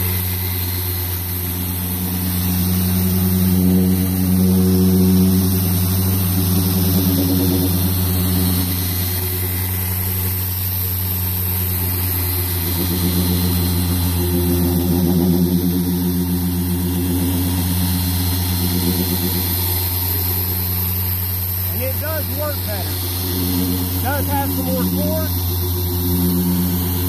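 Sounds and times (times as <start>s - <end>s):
polisher motor humming: 0.0s - 27.0s.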